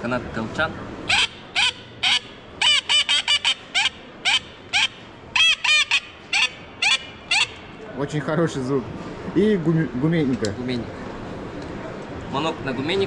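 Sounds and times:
duck call quacking: 1.1 - 7.6.

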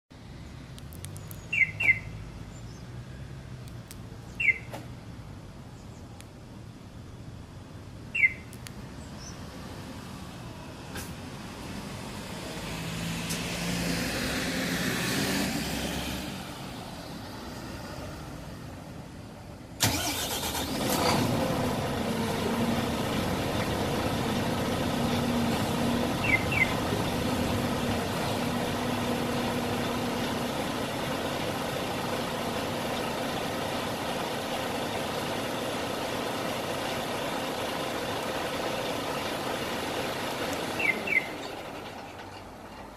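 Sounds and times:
truck engine idling: 19.3 - 42.9
truck diesel engine cranking: 19.8 - 42.9.

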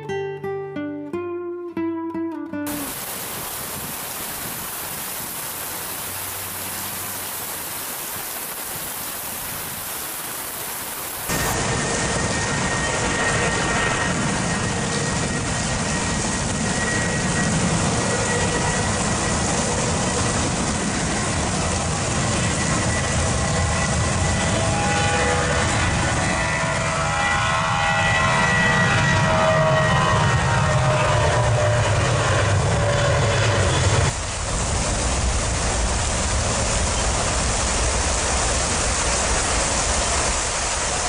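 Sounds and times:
heavy rain: 2.7 - 27.4, 33.5 - 41.0
jet airliner engines whining: 2.7 - 41.0.

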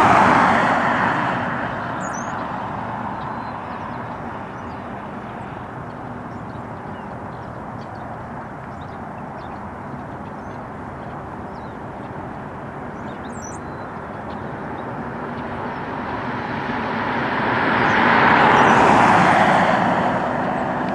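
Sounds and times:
road traffic noise: 0.0 - 20.9
vehicle passing: 0.0 - 20.9
high bird calls: 1.8 - 16.0.

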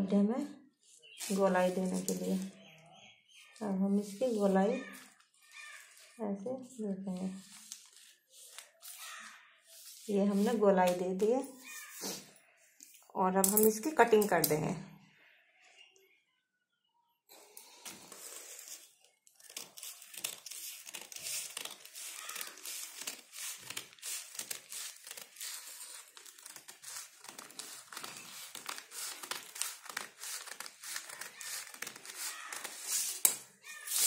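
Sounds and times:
paper rustling: 1.0 - 2.6, 3.3 - 12.3, 17.8 - 34.0
scissors snipping newspaper: 7.5 - 11.0, 18.4 - 34.0.

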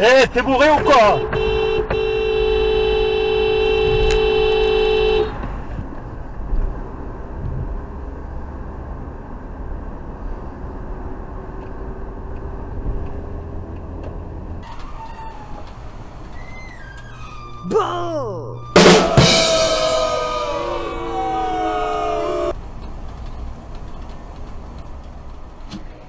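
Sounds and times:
road and engine rumble: 0.0 - 26.0
car horn two-note blast: 0.8 - 5.3, 18.6 - 22.6.

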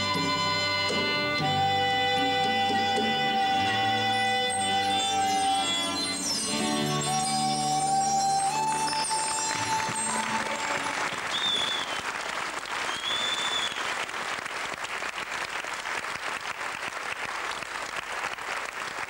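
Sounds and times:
live band final note: 0.0 - 11.8
short high whistles: 4.5 - 14.0
audience applauding: 6.4 - 19.0.

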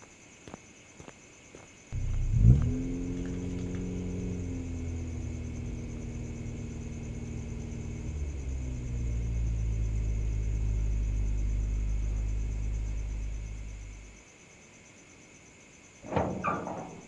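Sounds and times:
car engine rumble: 1.9 - 14.2.

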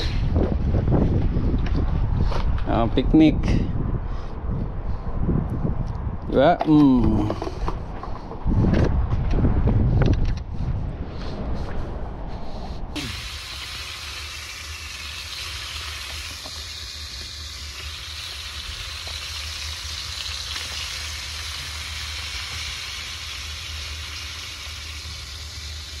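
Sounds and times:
low rumble: 7.1 - 26.0
fish sizzling in oil: 13.0 - 26.0.

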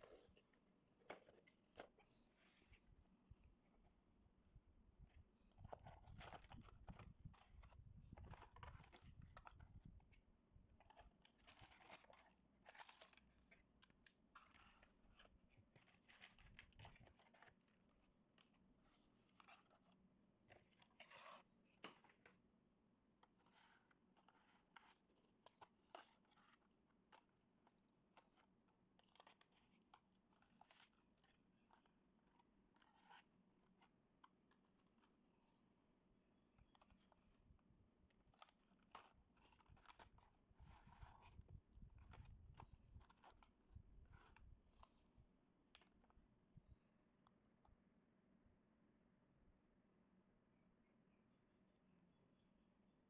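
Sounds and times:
plastic blister packs rustling: 5.6 - 9.8, 10.8 - 19.9.

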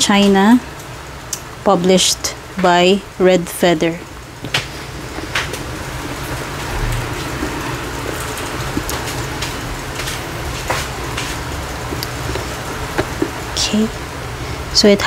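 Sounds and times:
low background rumble: 0.0 - 15.0
taps and rustles: 4.4 - 13.4
cardboard box being handled: 11.8 - 13.5.

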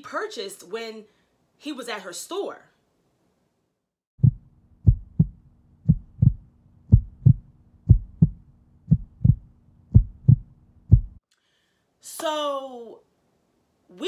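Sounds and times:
faint low hum: 4.2 - 11.2
heartbeat thumps: 4.2 - 11.2.

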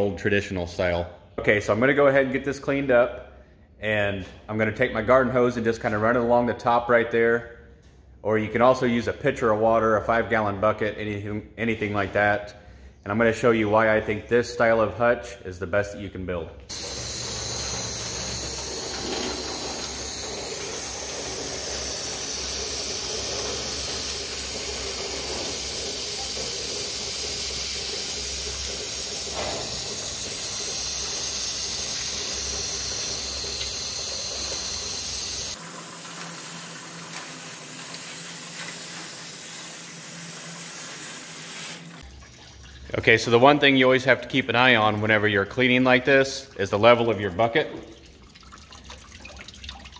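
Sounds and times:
hose spraying on metal: 16.7 - 42.0.

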